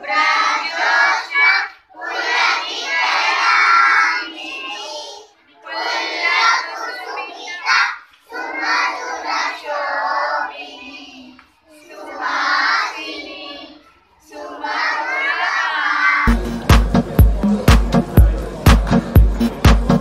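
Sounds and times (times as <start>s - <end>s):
children singing together: 0.0s - 16.4s
background music with steady beat: 16.3s - 20.0s.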